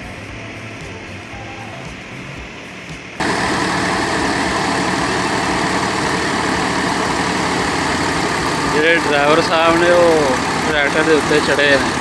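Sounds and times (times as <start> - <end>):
thresher running: 3.2 - 12.0
tractor engine running: 3.2 - 12.0.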